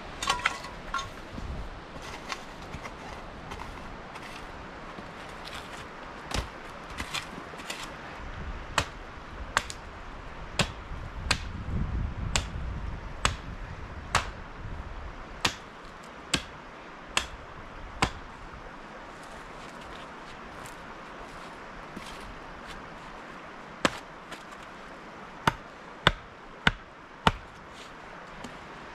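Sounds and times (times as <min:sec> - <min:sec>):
axe chopping wood: 0:06.3 - 0:07.8, 0:10.6 - 0:11.5, 0:12.3 - 0:12.6, 0:13.2 - 0:13.4, 0:14.1 - 0:14.4, 0:15.4 - 0:15.7, 0:16.3 - 0:16.6, 0:17.2 - 0:17.4, 0:18.0 - 0:18.2, 0:25.4 - 0:27.6.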